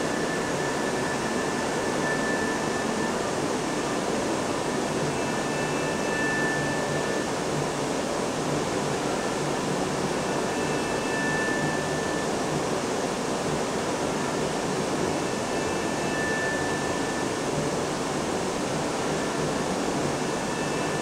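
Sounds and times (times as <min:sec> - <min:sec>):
faint thin high tone: 0:00.0 - 0:04.0, 0:04.6 - 0:07.3, 0:10.3 - 0:12.3, 0:15.1 - 0:17.4, 0:20.1 - 0:21.0.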